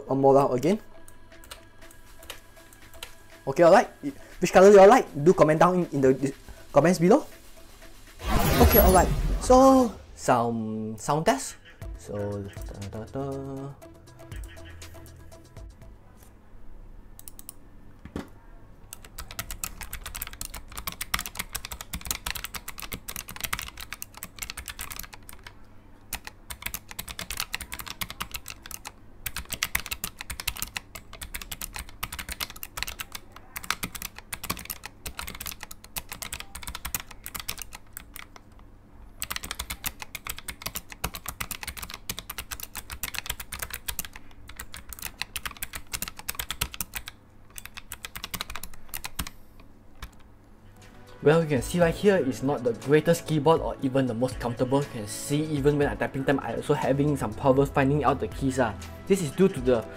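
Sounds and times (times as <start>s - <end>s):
mechanical keyboard typing: 1.4s - 7.1s, 17.2s - 17.6s, 18.9s - 50.3s.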